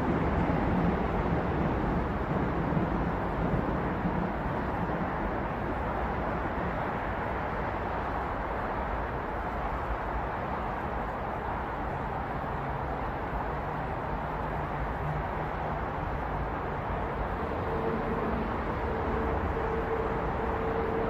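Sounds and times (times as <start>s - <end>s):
city traffic noise: 0.0s - 21.0s.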